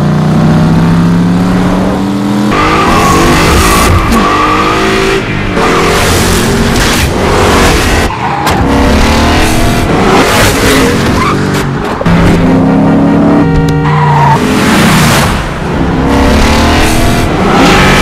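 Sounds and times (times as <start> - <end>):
car engines revving hard: 0.0 - 18.0
tire squeals: 7.9 - 8.7, 10.8 - 11.6, 13.4 - 14.4.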